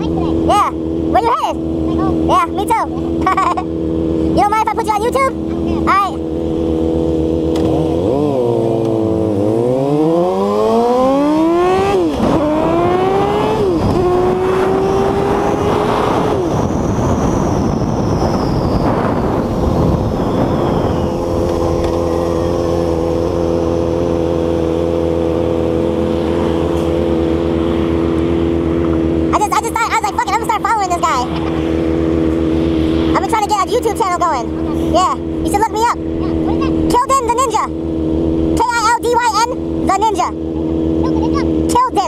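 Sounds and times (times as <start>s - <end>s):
motorcycle engine accelerating: 0.0s - 42.0s
wind rushing over microphone: 11.2s - 29.4s.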